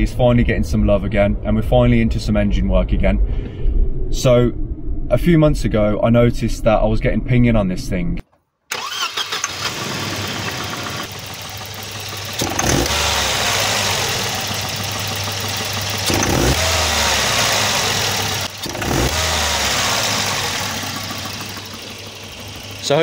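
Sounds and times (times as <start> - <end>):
engine idling and revving: 8.7 - 23.0.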